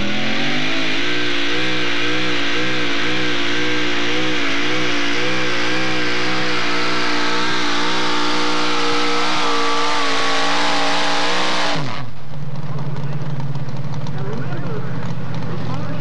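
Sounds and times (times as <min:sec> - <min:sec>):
truck engine running flat out: 0:00.0 - 0:16.0.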